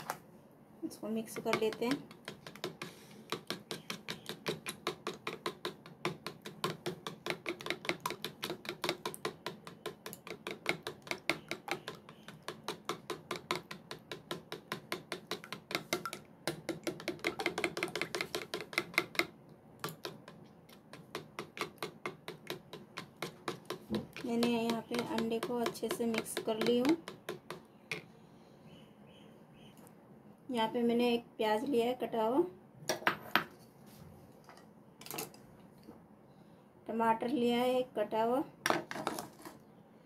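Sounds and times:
spoon clicking against plastic bowl: 1.4s - 28.0s.

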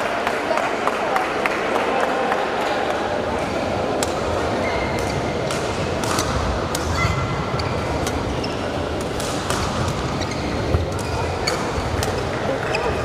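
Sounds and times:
busy sports hall background: 0.0s - 13.0s
rackets hitting shuttlecock: 3.9s - 12.9s
shoes squeaking on court: 7.1s - 13.0s.

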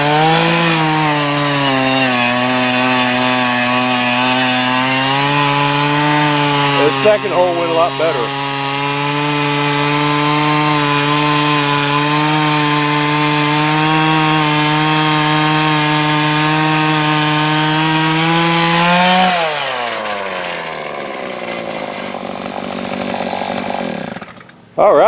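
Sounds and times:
post-hole auger engine running: 0.0s - 24.6s.

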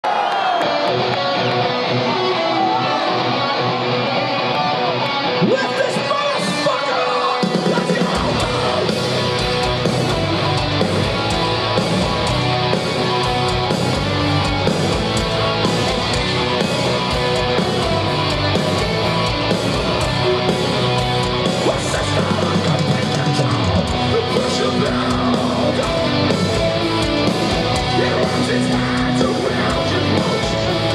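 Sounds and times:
electric guitar riff: 0.6s - 30.9s
metal band playing live: 0.6s - 30.9s.

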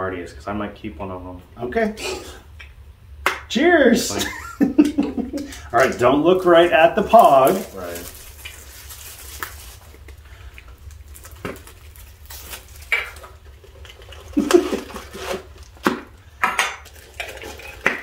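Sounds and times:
metal cans clicking and rattling: 12.9s - 18.0s
knocks on metal cans: 15.8s - 18.0s.

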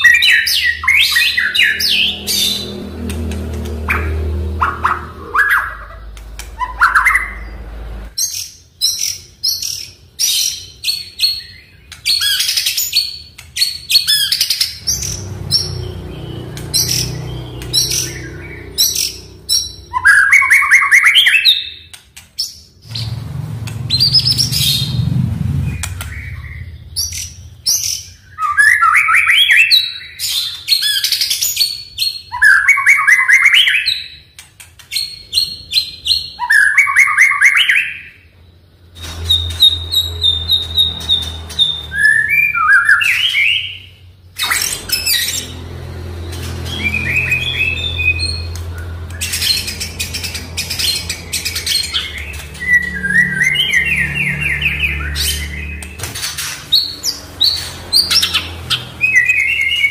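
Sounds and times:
low rumble: 1.0s - 6.6s, 22.8s - 28.1s
bird singing whistled notes: 39.0s - 43.9s, 46.6s - 55.9s.

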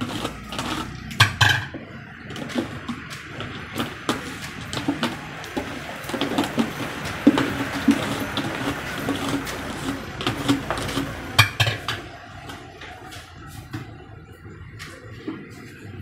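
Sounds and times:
background noise: 0.0s - 16.0s
metal tin knocking on steel pot: 3.9s - 12.7s.

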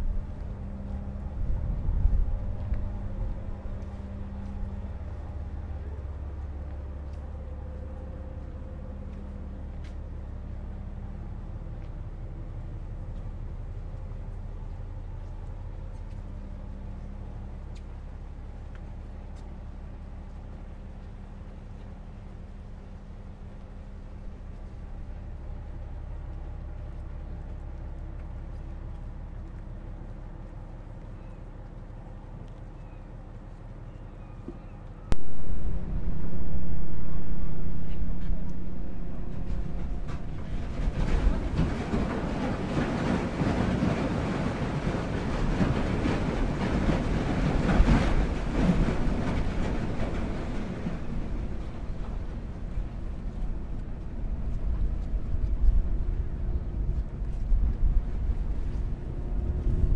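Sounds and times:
ferry engines rumbling: 0.0s - 59.9s
faint even hum: 33.9s - 42.5s
water washing along hull: 35.1s - 59.9s.

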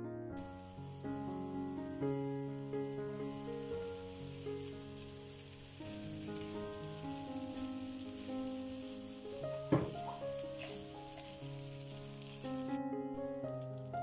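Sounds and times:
background music sustained notes: 0.3s - 14.0s
food sizzling in frying pan: 0.4s - 14.0s
spatula knocking pan: 9.6s - 11.3s.

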